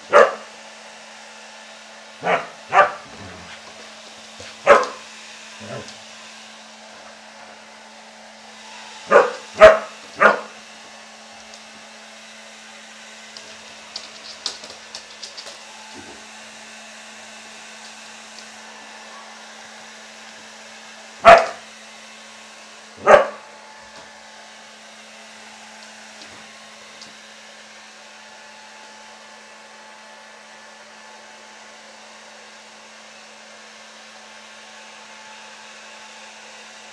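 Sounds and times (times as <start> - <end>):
dog barking: 0.0 - 0.5, 2.2 - 3.4, 4.6 - 5.0, 5.6 - 5.9, 9.0 - 10.6, 21.2 - 21.6, 23.0 - 23.5
hair dryer blowing: 0.0 - 36.9.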